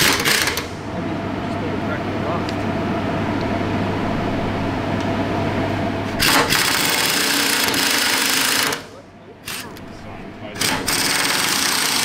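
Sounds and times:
power drill drilling into metal: 10.6s - 12.0s.

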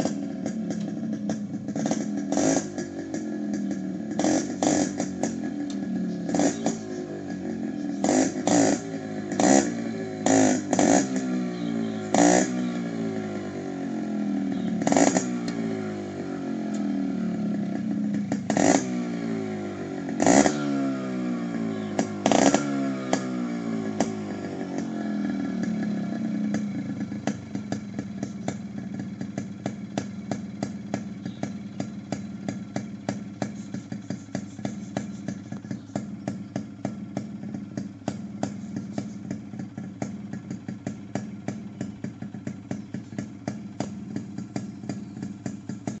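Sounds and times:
motorcycle engine idling: 0.0s - 46.0s
exhaust crackling pops: 31.8s - 41.6s, 42.4s - 46.0s.

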